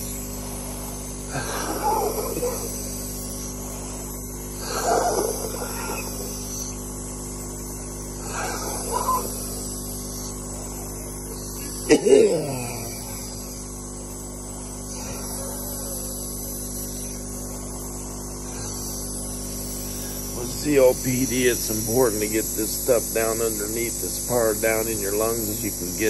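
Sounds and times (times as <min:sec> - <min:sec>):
nebulizer compressor hum: 0:00.0 - 0:26.0.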